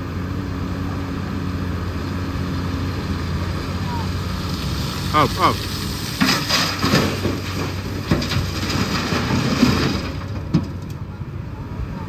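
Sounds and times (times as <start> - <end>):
diesel engine running: 0.0 - 12.0
rattling clatter: 5.7 - 11.0.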